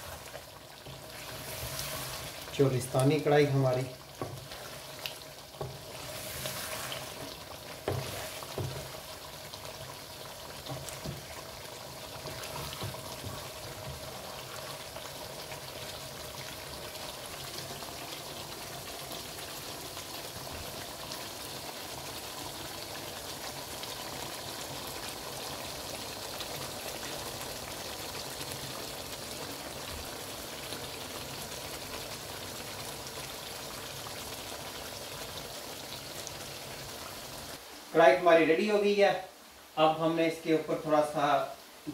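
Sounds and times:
wooden spoon stirring: 0.0 - 15.9
gravy bubbling and sizzling: 0.0 - 41.9.

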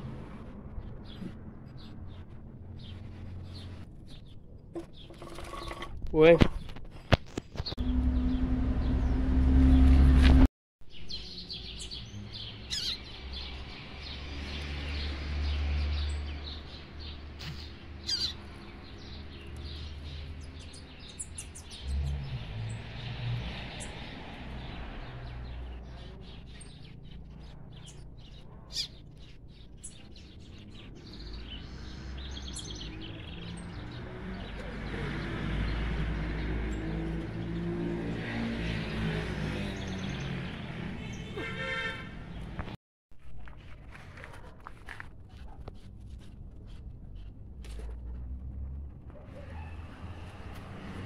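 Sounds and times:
caged birds chirping: 0.2 - 10.2, 10.9 - 42.8
loud low rumble: 7.8 - 10.5.

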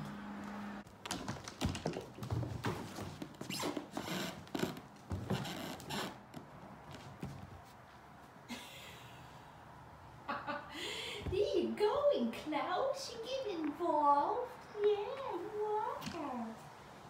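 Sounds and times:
cat paws scampering on wood floor: 0.9 - 7.8.

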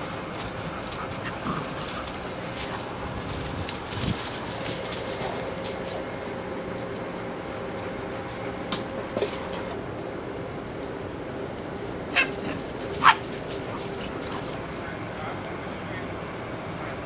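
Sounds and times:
faint hum: 0.0 - 17.0
puppy yipping: 12.1 - 13.2.

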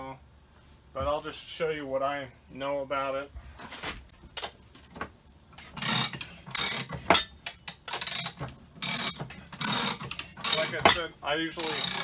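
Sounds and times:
metallic scraping of slip roll: 5.6 - 12.0.

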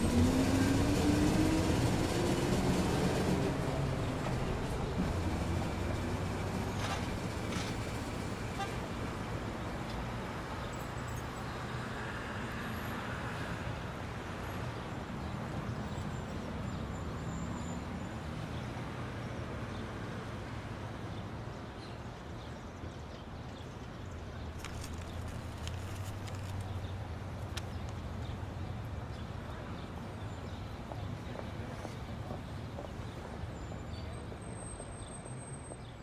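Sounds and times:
vehicle engine rumble: 0.0 - 9.5, 24.5 - 29.7
street noise: 0.0 - 36.0.

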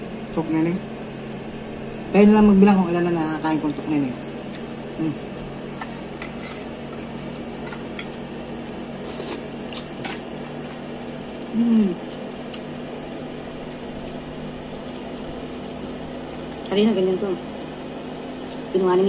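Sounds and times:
person chewing: 9.0 - 12.7, 13.4 - 16.7
person humming mm: 11.5 - 12.2.

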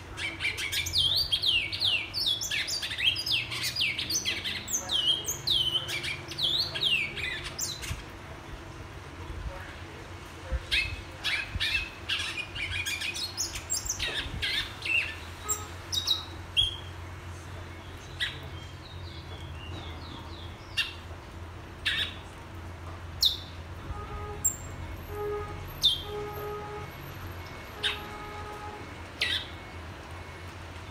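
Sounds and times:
finch singing: 10.7 - 16.9, 25.8 - 26.2.

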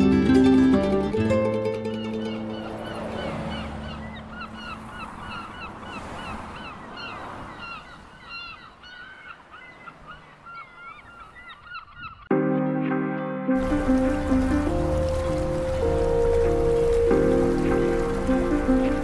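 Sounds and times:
flock of birds calling: 1.9 - 12.3.

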